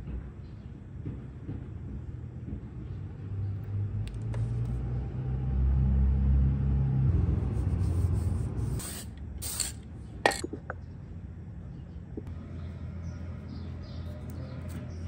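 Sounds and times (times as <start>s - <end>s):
aerosol spray can hissing: 7.7s - 9.8s.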